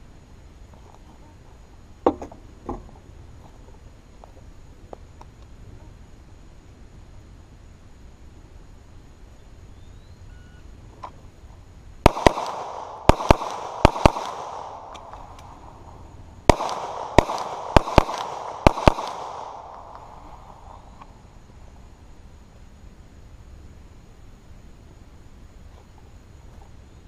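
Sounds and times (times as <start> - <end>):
pistol shots echoing: 12.0 - 20.9.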